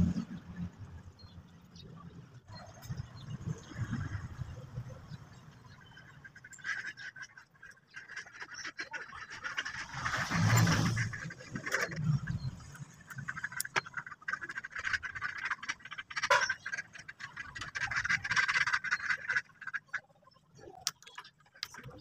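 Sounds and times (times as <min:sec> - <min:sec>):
wires clicking and scraping: 0:05.3 - 0:22.0.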